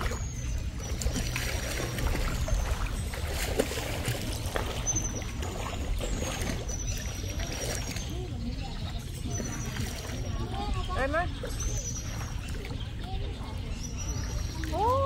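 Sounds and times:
shallow river water trickling: 0.0 - 15.0.

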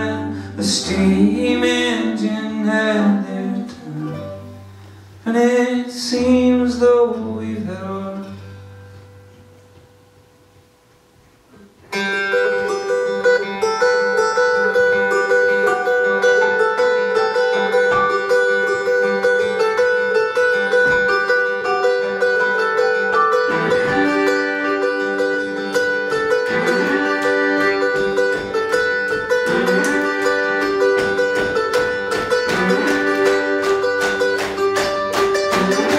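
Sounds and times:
banjo: 0.0 - 9.4, 11.5 - 35.9
upright bass: 0.0 - 9.4, 12.3 - 35.9
acoustic guitar: 0.0 - 35.9
fiddle: 11.9 - 35.9.

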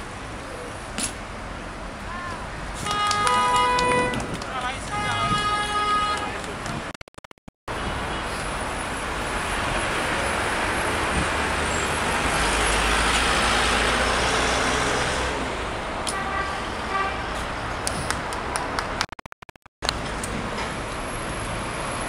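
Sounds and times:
city road traffic: 0.0 - 22.0
sharp clicks: 6.4 - 7.5.

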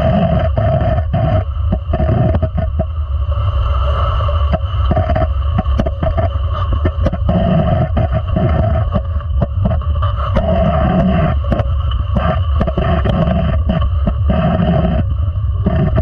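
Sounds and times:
sled blades rumbling on ice: 4.4 - 16.0.

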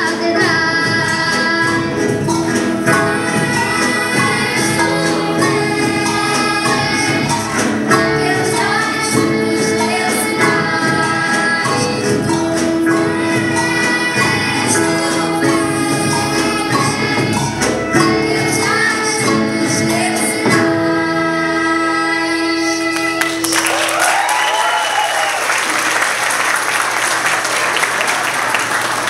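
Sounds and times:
children's choir singing: 0.0 - 23.7
acoustic guitar and band: 0.0 - 29.0
audience applause and cheering: 22.9 - 29.0.

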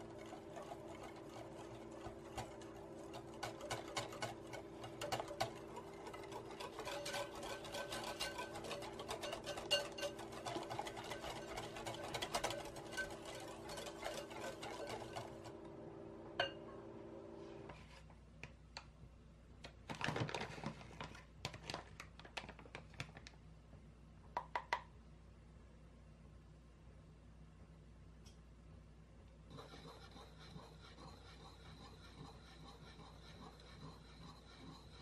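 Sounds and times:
whisk clicking against glass bowl: 0.0 - 15.4.

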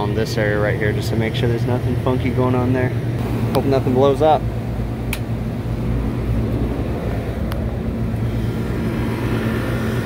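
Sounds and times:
compressor and fan humming: 0.0 - 10.0
rooftop equipment hum: 0.0 - 10.0
condensing unit starting click: 3.2 - 3.9, 5.0 - 5.4.

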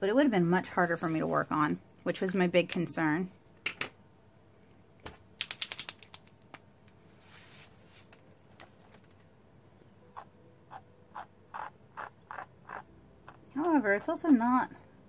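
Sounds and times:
soft rustle: 0.7 - 1.6, 7.0 - 9.2
paint markers clicking: 5.4 - 6.4.

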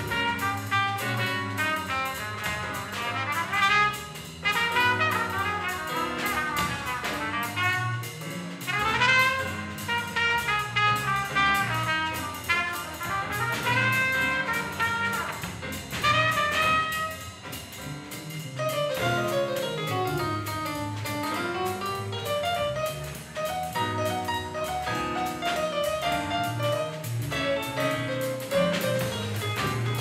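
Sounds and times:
trumpet phrases: 0.0 - 8.1, 8.7 - 15.4
drum kit: 0.0 - 30.0
electric bass: 0.0 - 30.0.

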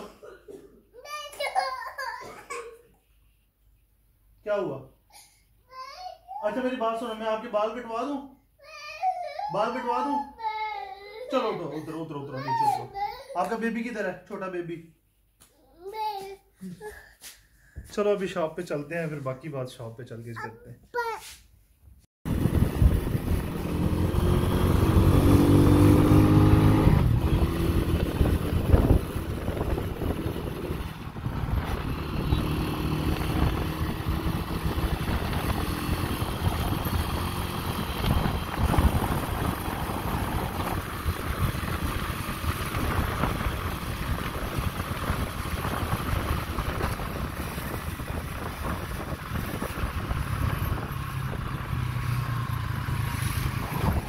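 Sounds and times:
motorcycle engine: 22.3 - 54.0
passing traffic: 22.3 - 54.0
wind and road noise: 22.3 - 54.0.

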